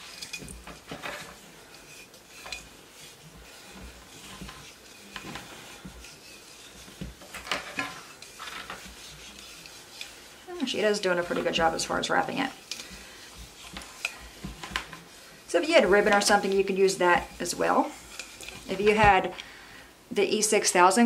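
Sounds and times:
light knocks and scrapes on clay pot: 0:00.0 - 0:19.4
twine rustling and rubbing: 0:00.0 - 0:20.9.

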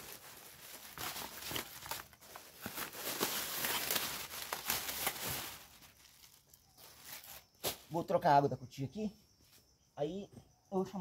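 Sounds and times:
rustling and crinkling: 0:00.0 - 0:08.0.

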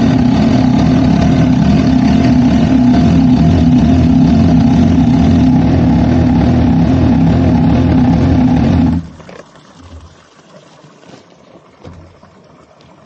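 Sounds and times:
motorcycle engine idling: 0:00.0 - 0:09.0.

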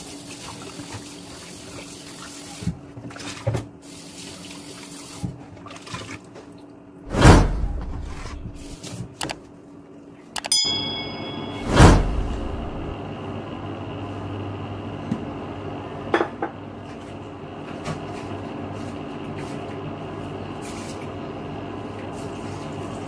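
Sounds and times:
tap water running into a sink: 0:00.0 - 0:06.2
loud rushing burst: 0:07.1 - 0:08.8, 0:11.6 - 0:13.0.

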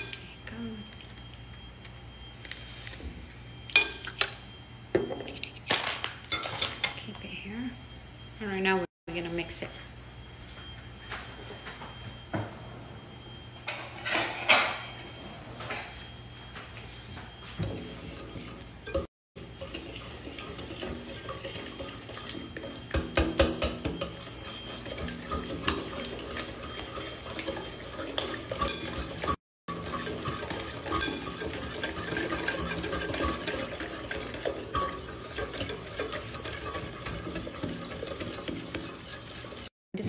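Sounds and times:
whisk clinking against glass bowl: 0:03.7 - 0:04.4, 0:06.3 - 0:07.0, 0:17.4 - 0:39.7.

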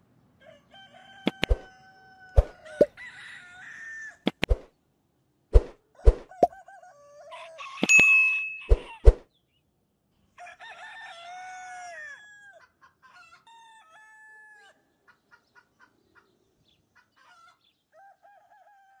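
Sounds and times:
rooster crowing: 0:00.4 - 0:04.2, 0:06.3 - 0:07.9, 0:10.4 - 0:12.6, 0:18.0 - 0:19.0
rooster clucking: 0:01.2 - 0:01.8, 0:02.4 - 0:03.1, 0:04.3 - 0:04.6, 0:06.0 - 0:06.7.

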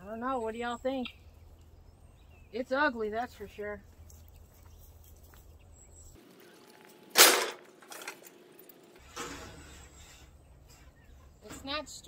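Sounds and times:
sharp bang: 0:07.1 - 0:07.6.

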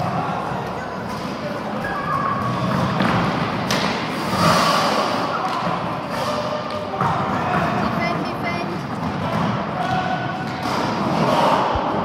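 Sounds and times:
skate wheels rolling on floor: 0:00.0 - 0:12.0
hockey sticks and ball knocking: 0:02.4 - 0:12.0.

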